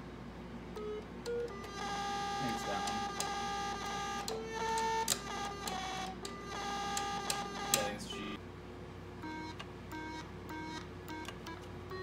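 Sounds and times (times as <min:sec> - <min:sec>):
steady low hum: 0:00.0 - 0:12.0
key buttons clicking: 0:04.2 - 0:08.4.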